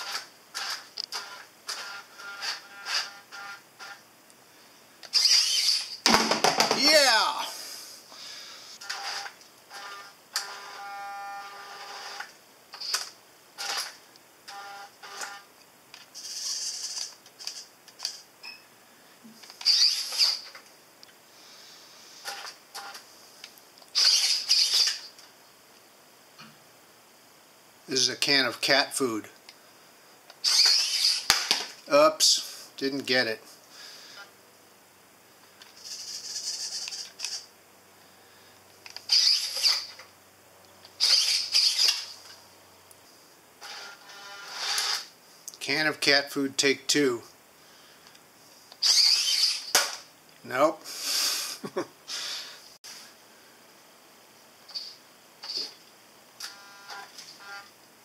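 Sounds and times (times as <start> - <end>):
robot arm servos whirring: 5.0 - 6.0, 16.2 - 18.1, 19.6 - 20.6, 23.9 - 25.1, 30.4 - 31.5, 35.8 - 37.5, 38.9 - 40.0, 40.9 - 42.3, 43.6 - 45.1, 48.8 - 50.0
servos whining and chattering: 19.6 - 20.6, 23.9 - 25.2, 30.3 - 31.3, 38.9 - 40.0, 40.9 - 42.4, 48.8 - 49.7.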